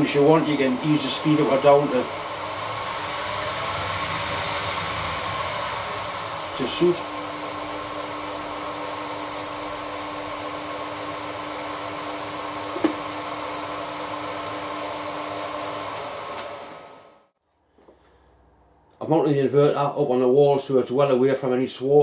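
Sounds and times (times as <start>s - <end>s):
milling machine motor humming: 0.0s - 17.2s.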